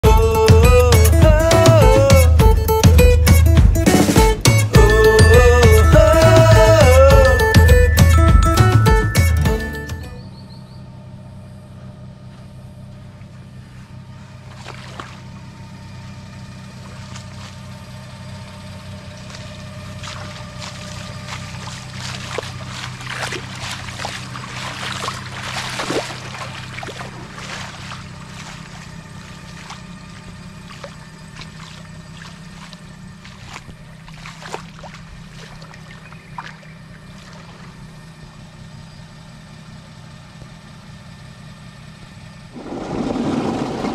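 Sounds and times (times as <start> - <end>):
vehicle engine idling: 0.0 - 43.9
footsteps splashing through water: 14.4 - 15.4, 16.7 - 18.0, 19.0 - 37.8.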